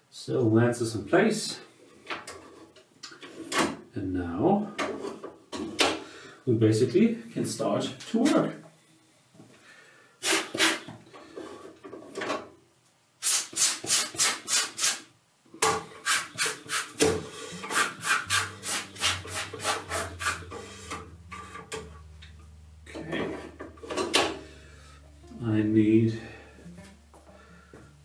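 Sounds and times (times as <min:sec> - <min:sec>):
rhythmic rasping strokes: 0:16.0 - 0:28.0
low steady hum: 0:17.3 - 0:28.0.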